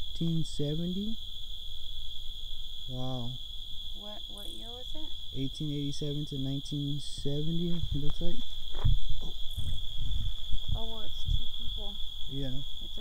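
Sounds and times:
people talking quietly: 0.0 - 1.2, 2.9 - 3.4, 4.0 - 8.4, 10.8 - 13.0
crickets chirping: 0.0 - 13.0.

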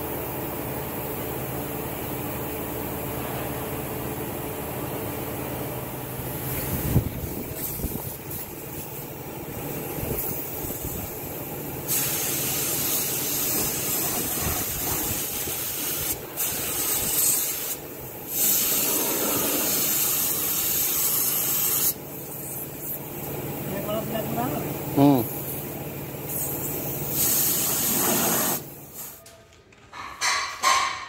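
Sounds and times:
paint spray gun hissing: 10.1 - 23.1, 25.4 - 29.2.

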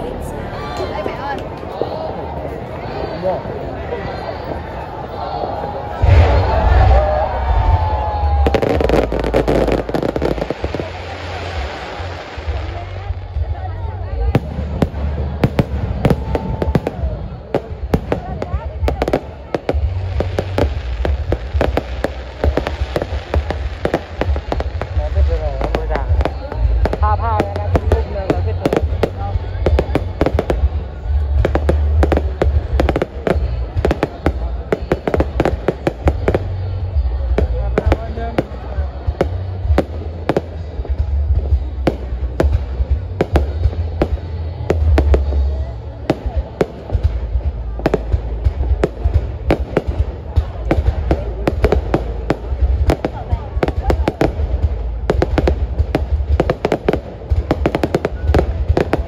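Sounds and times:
fireworks cracking and popping: 5.9 - 59.0
low rumble: 6.0 - 34.7.

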